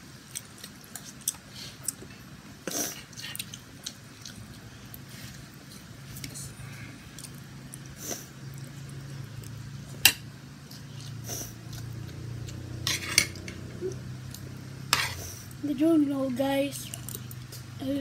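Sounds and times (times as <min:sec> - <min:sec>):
steady low hum: 0:00.0 - 0:18.0
cutlery clinking on a plate: 0:12.9 - 0:13.7.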